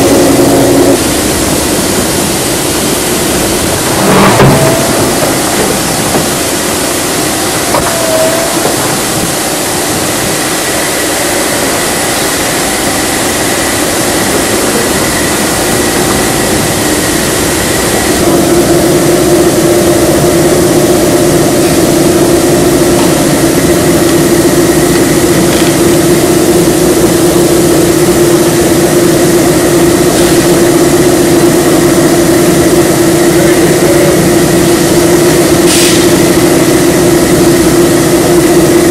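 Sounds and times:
screw compactor drone: 0.0s - 2.1s.

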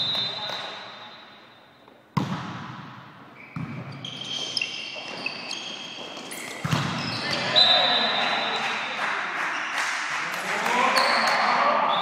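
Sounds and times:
trainers squeaking on court floor: 0.0s - 1.4s, 3.4s - 9.8s, 10.7s - 12.0s
volleyball struck hard: 2.2s - 3.0s.

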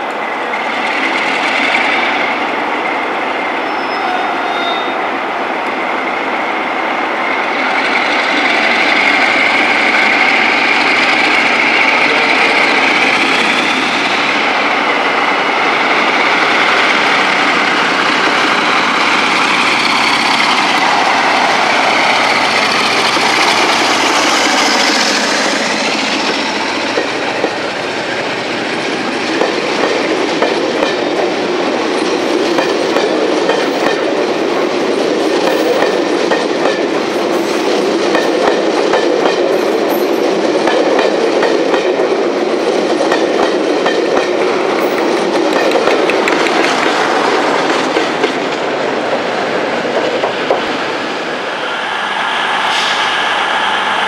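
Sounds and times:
diesel locomotive engine: 0.0s - 54.0s
train wheels clicking over rail joints: 15.8s - 50.9s.

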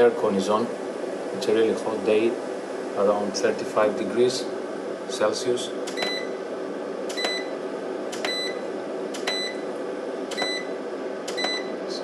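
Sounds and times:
steady low hum: 0.0s - 12.0s
short high key beep: 11.3s - 11.7s.

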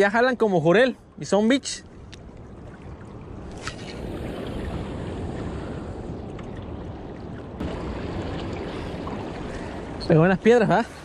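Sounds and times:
wind buffeting microphone: 1.9s - 10.4s
water lapping against rocks: 6.3s - 10.2s.

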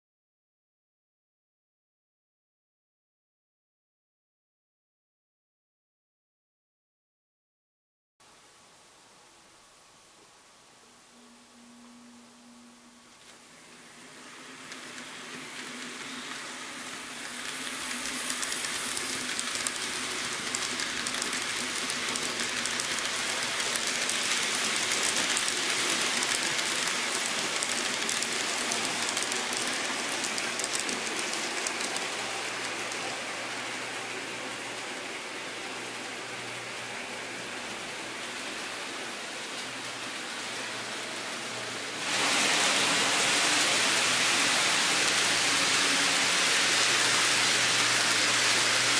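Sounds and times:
model trains rattling on track: 14.1s - 36.1s, 37.0s - 48.9s.

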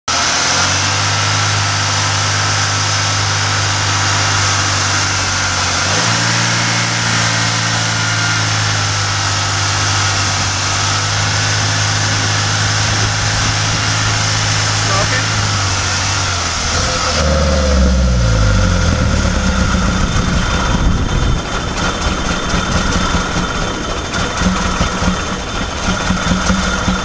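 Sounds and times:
car engine idling: 1.7s - 27.0s.

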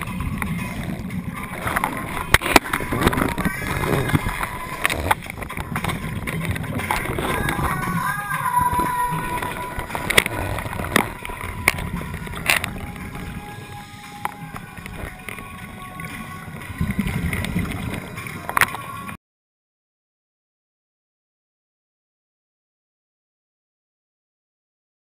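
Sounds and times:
muffled underwater noise: 0.0s - 19.0s
faint steady tones: 0.0s - 19.2s.

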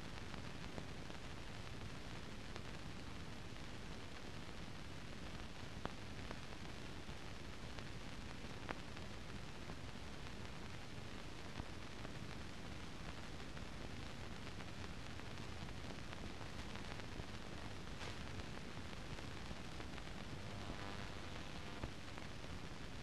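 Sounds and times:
steady film hiss: 0.0s - 23.0s.

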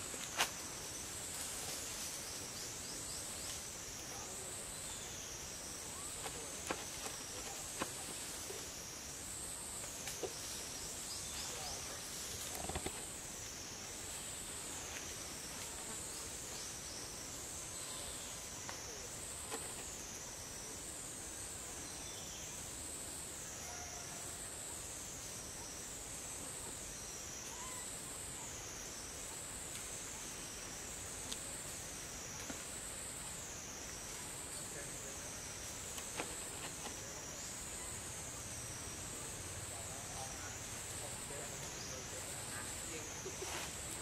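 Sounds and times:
cicadas droning: 0.0s - 44.0s
faint snaps: 31.2s - 31.5s.

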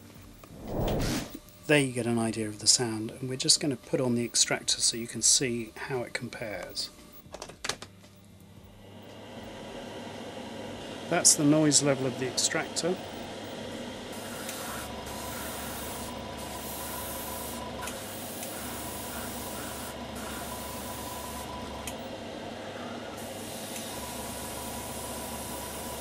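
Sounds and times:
extractor fan running: 8.6s - 26.0s
airbrush hissing bursts: 14.2s - 21.2s.

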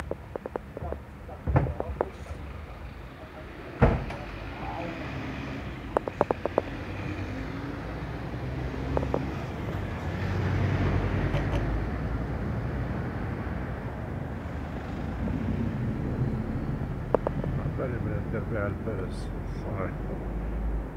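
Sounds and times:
passing vehicle: 0.0s - 20.9s
road traffic: 0.0s - 20.9s.

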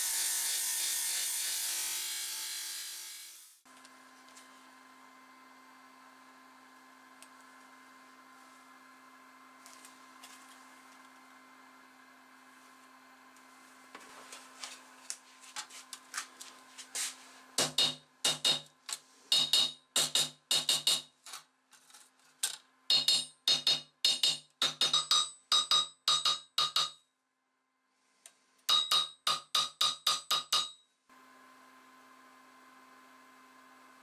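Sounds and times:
hammer clanging on saw blade: 17.6s - 18.7s, 19.3s - 21.1s, 22.9s - 27.0s, 28.7s - 30.8s.

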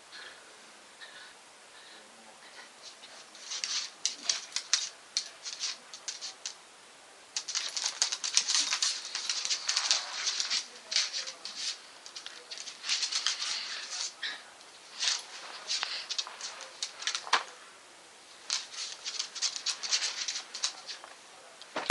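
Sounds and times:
dog claws clicking on wooden floor: 3.3s - 6.6s, 7.4s - 14.1s, 15.0s - 17.5s, 18.4s - 21.1s.

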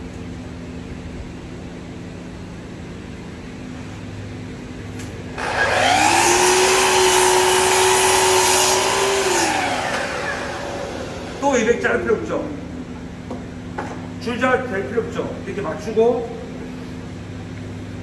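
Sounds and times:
miter saw cutting plywood: 5.4s - 11.4s
dust extractor rushing: 5.4s - 11.7s
low steady hum: 7.9s - 18.0s.

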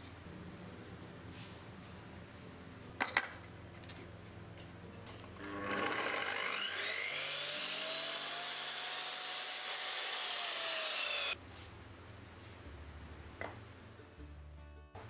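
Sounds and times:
miter saw whining and cutting wood: 5.4s - 11.4s.

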